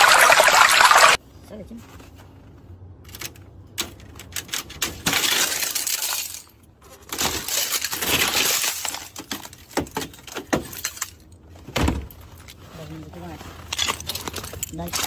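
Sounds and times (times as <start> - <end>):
ice cracking and shattering: 7.1 - 11.1.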